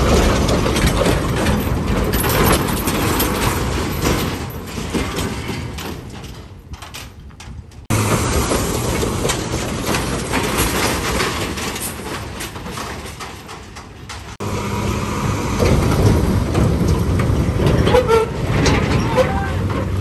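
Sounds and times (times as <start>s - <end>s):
knocks and clanks of truck bodies: 0.0s - 20.0s
trucks grinding through mud: 7.9s - 12.9s, 14.3s - 20.0s.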